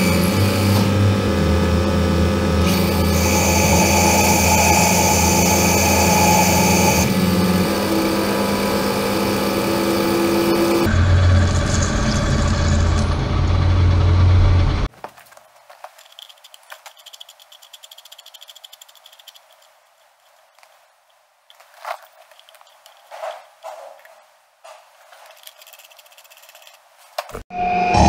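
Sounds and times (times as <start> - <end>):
lathe humming and whining: 0.0 - 14.9
metal parts clicking: 15.3 - 20.4, 21.5 - 23.2, 25.2 - 26.8.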